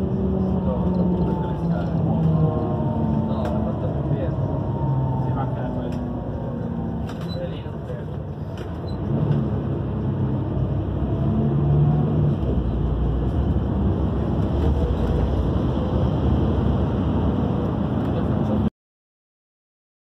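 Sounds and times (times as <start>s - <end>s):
train wheels rumbling on rails: 12.2s - 18.6s.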